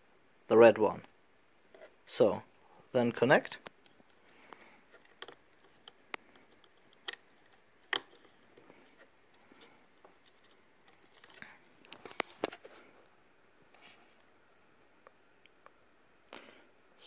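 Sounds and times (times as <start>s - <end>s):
fingers handling wires clicking: 3.6s - 8.6s.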